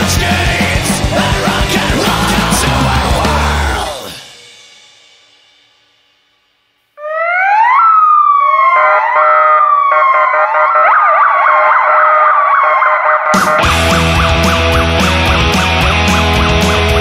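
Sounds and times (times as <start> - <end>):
punk music: 0.0 - 5.5, 13.3 - 17.0
sirens rising and falling: 0.2 - 4.2, 7.0 - 17.0
siren yelp: 7.0 - 17.0.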